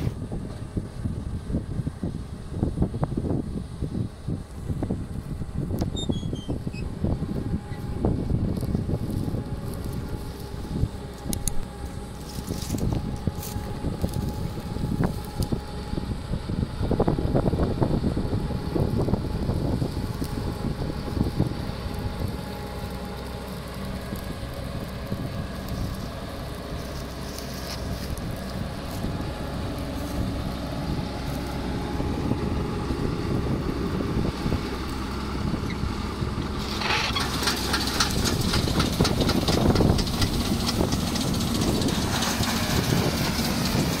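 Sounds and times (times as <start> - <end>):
combine harvester engine running: 0.0 - 44.0
auger rattling clatter: 36.6 - 44.0.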